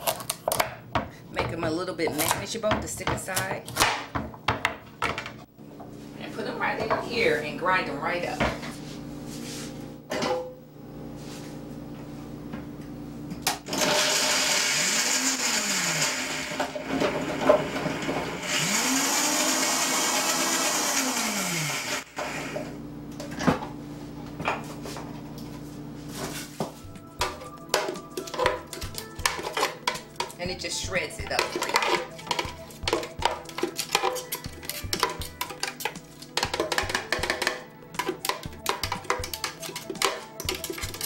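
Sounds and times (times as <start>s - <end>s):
blender motor shredding carrots: 13.6s - 22.8s.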